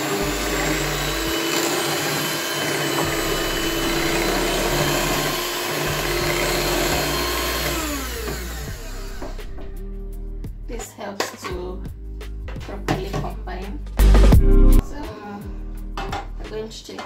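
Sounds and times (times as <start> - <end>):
electric hand mixer whirring: 0.0 - 9.8.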